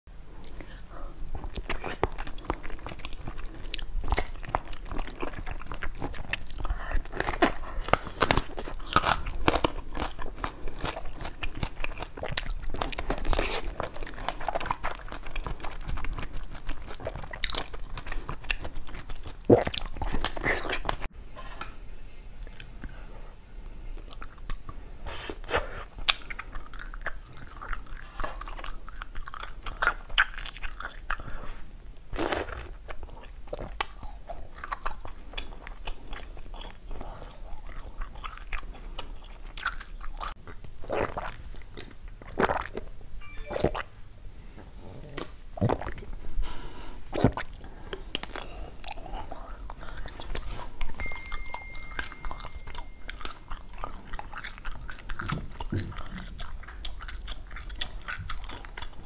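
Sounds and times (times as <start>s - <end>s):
crunching bites and chewing: 1.4s - 21.1s, 32.1s - 42.9s, 47.1s - 59.0s.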